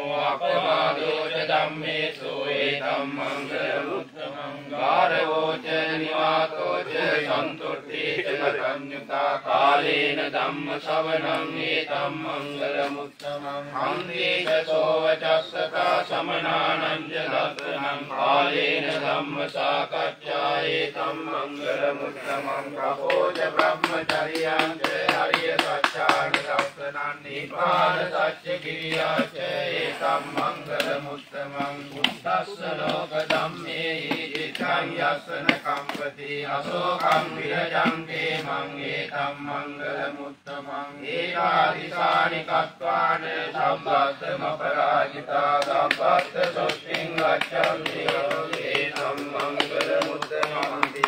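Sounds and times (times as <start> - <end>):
man chanting: 20.2 - 37.7, 46.2 - 51.0.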